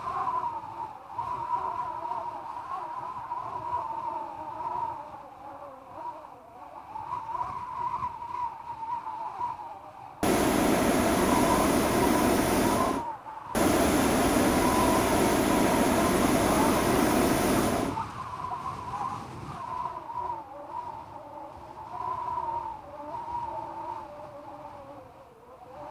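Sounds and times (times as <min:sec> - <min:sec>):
propane burner roaring: 0:10.2 - 0:13.0, 0:13.6 - 0:18.0.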